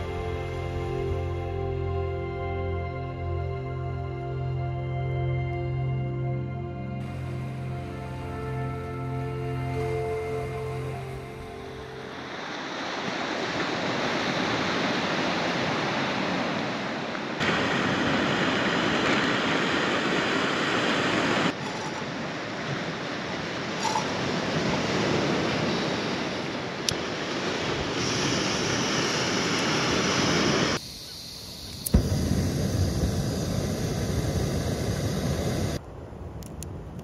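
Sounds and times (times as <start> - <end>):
surf on rocky shore: 9.6 - 30.8, 31.9 - 35.8.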